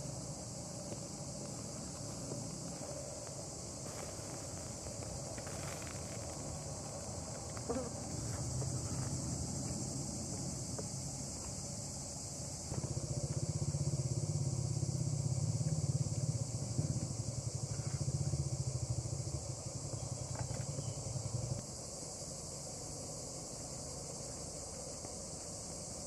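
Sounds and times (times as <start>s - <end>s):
insects chirring: 0.0s - 26.0s
pulsing engine-like rumble: 11.7s - 21.6s.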